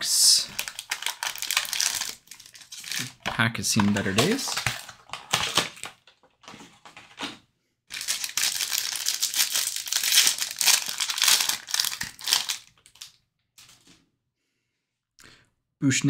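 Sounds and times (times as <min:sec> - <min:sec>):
foil wrapper crinkling and tearing: 0:00.4 - 0:06.0, 0:07.9 - 0:13.1.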